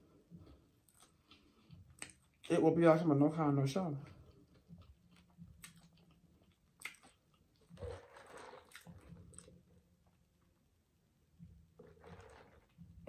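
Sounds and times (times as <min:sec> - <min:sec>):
celery crunching and chewing: 0:04.0 - 0:09.8.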